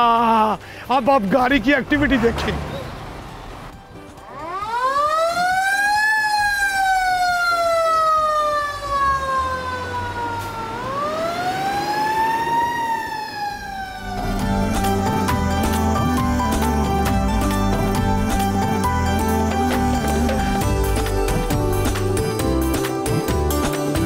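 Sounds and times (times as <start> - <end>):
fire engine siren wailing: 4.2 - 18.0.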